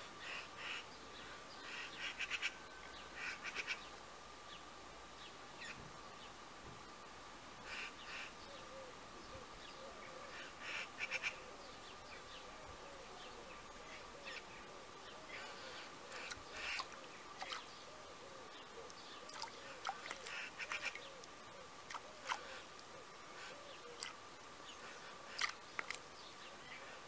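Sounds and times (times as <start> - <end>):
faint steady tone: 0.0 - 27.0
bird splashing in water: 16.0 - 17.8, 18.9 - 22.9, 23.9 - 24.3, 25.2 - 26.1.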